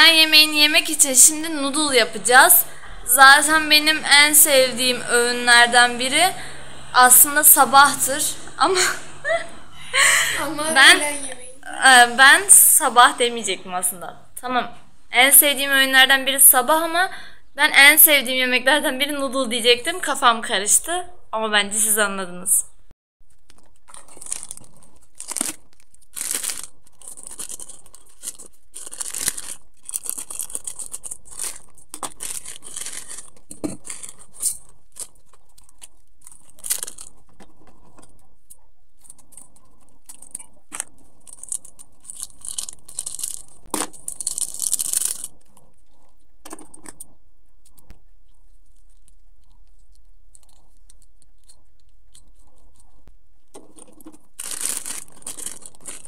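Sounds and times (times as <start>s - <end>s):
plastic packets crinkling and tearing: 23.2s - 56.0s.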